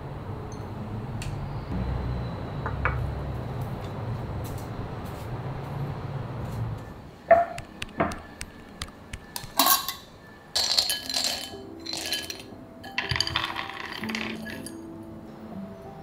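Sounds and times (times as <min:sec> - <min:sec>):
almonds pouring into glass bowl: 0:10.6 - 0:12.4, 0:13.0 - 0:14.6.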